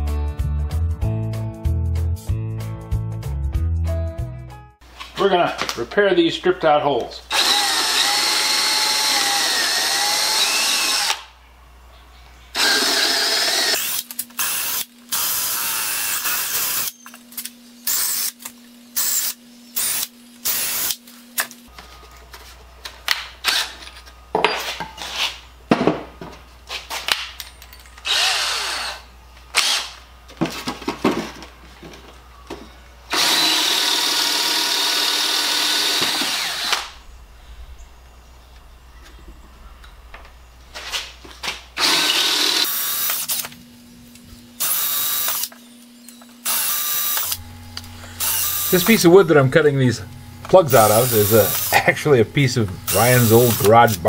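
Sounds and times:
cordless drill boring into wood: 7.3 - 11.2, 12.6 - 16.9, 28.0 - 29.0, 29.6 - 30.0, 33.1 - 37.0, 41.8 - 43.4, 44.6 - 45.5, 46.4 - 47.4, 48.2 - 49.0, 50.6 - 51.8, 52.9 - 54.0.

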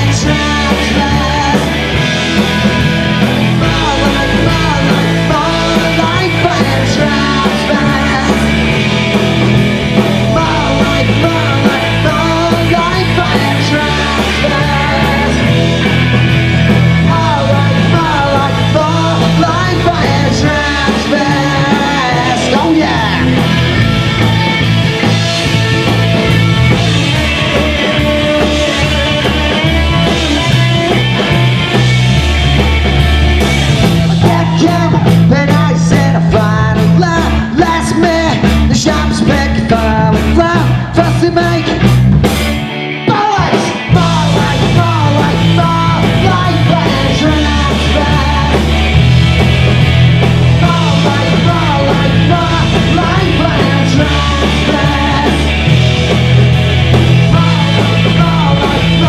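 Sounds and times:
person singing: 0.0 - 42.0, 43.0 - 59.0
rock band playing live: 0.0 - 59.0.

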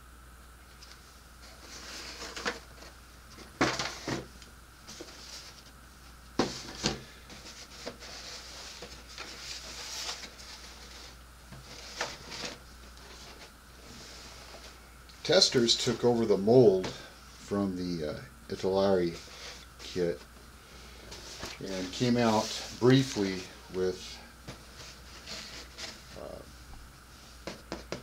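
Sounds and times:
cardboard boxes rustling and sliding: 1.4 - 5.6, 6.4 - 14.8, 21.0 - 26.2.

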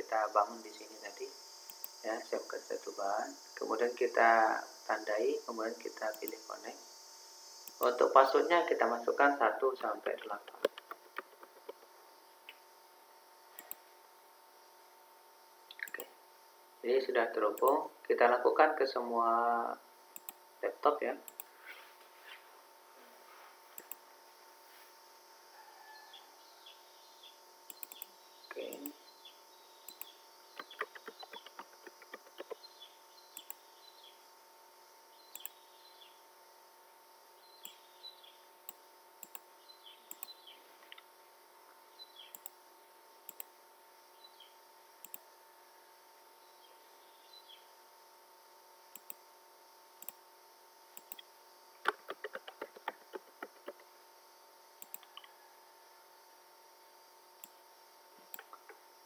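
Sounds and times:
faint steady hum: 0.0 - 59.0
computer mouse clicks: 13.6 - 13.8, 15.7 - 16.1, 20.2 - 20.4, 21.3 - 21.5, 23.8 - 24.0, 27.7 - 28.1, 29.9 - 32.7, 33.4 - 33.6, 35.3 - 35.6, 38.7 - 39.4, 40.1 - 41.0, 42.3 - 42.6, 43.3 - 43.5, 45.0 - 45.3, 48.9 - 49.2, 50.0 - 50.2, 50.9 - 53.9, 54.8 - 55.3, 58.3 - 58.8
rapid keyboard typing: 30.6 - 32.6, 51.9 - 53.8.

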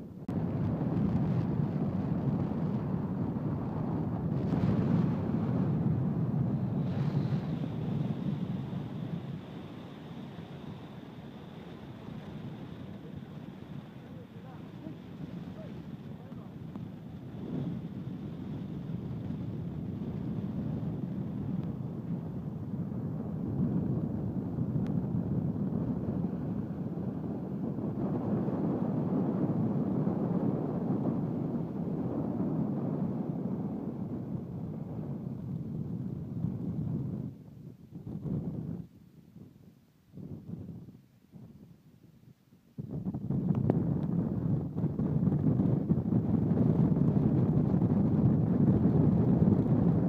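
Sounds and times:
wind buffeting microphone: 0.0 - 50.0.

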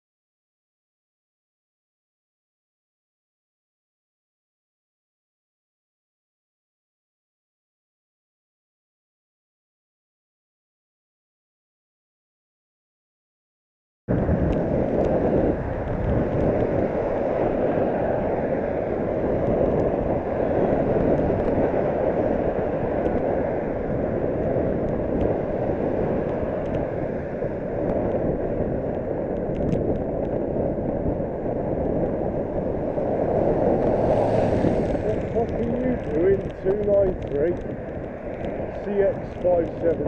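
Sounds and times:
traffic: 14.1 - 40.0
wind noise on microphone: 14.1 - 40.0
faint clicks: 28.9 - 30.4, 34.6 - 40.0.

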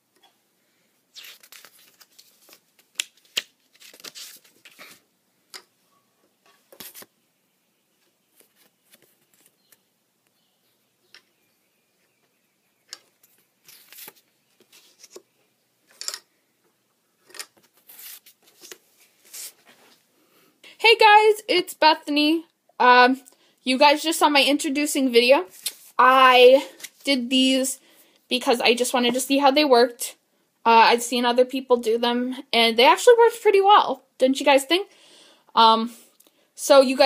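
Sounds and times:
paper cards rustling and tapping: 1.4 - 5.7, 8.3 - 9.8, 12.8 - 15.3.

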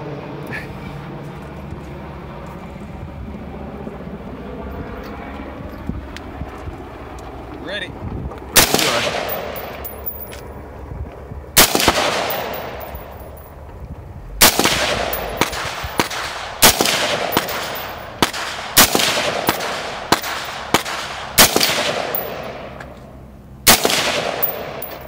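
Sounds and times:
rifle shots with echo: 8.5 - 10.4, 11.6 - 13.6, 14.2 - 23.0, 23.6 - 25.0.

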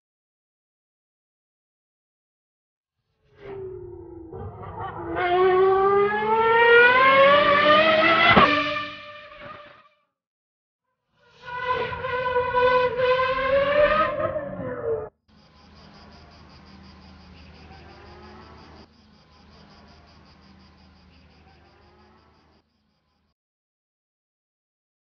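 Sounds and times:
racing car engine revving: 4.8 - 9.6.

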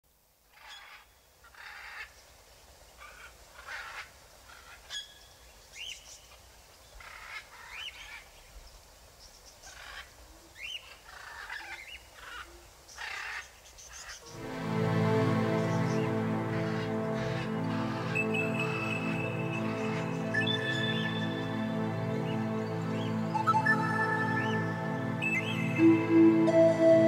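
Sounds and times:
gulls calling: 14.3 - 27.0.

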